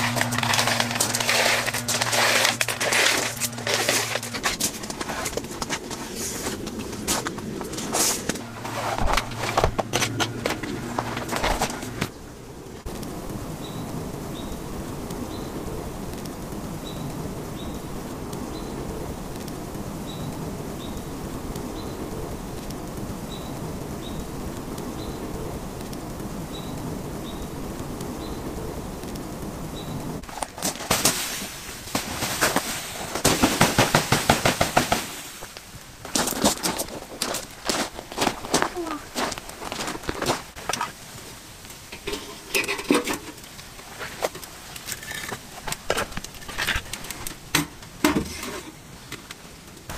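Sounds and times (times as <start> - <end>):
footsteps crunching in snow: 0.0 - 12.1, 30.2 - 41.0
gear being handled: 0.0 - 12.1
steady outdoor hiss: 0.0 - 49.9.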